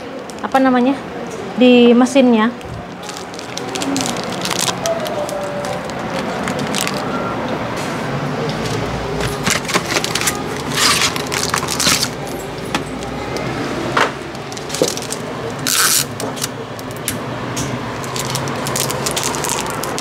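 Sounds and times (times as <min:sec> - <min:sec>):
plastic packets crinkling: 0:02.8 - 0:07.2, 0:08.5 - 0:13.6, 0:14.2 - 0:16.6, 0:17.9 - 0:20.0.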